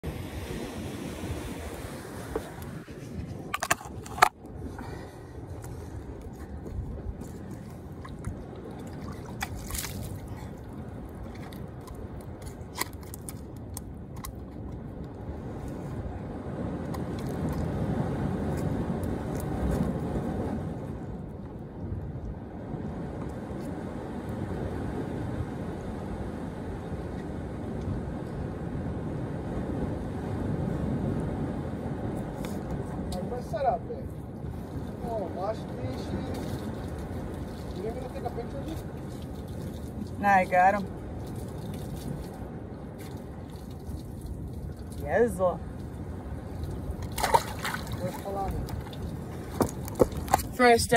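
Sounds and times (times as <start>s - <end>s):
ocean surf: 0.0s - 11.9s, 22.4s - 41.2s
wind buffeting microphone: 0.0s - 50.9s.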